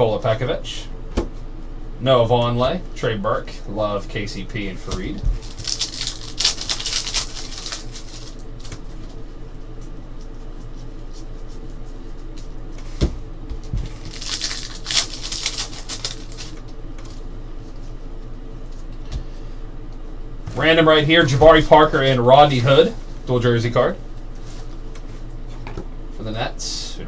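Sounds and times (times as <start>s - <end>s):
low steady hum: 0.0s - 27.0s
foil wrappers crinkling: 5.0s - 9.2s, 13.6s - 17.2s.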